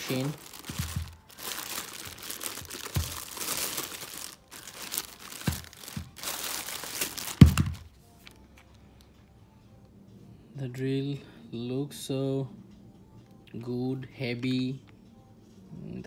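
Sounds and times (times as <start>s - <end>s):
packaging rustling: 0.0s - 7.9s
dull thumps: 0.5s - 1.4s.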